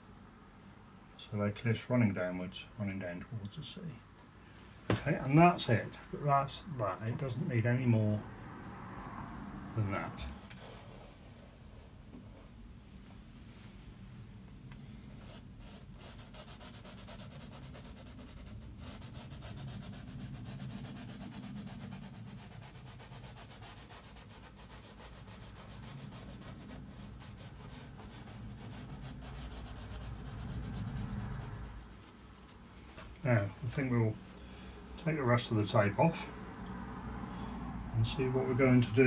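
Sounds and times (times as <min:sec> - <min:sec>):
brush scrubbing on canvas: 0:14.9 - 0:34.0.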